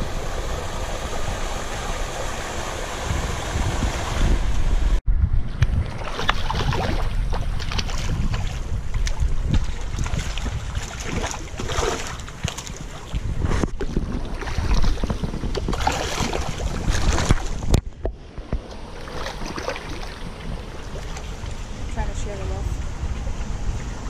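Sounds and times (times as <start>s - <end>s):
wind rumbling on microphone: 0.0s - 24.0s
fish splashing in water: 5.9s - 17.8s, 18.8s - 21.7s.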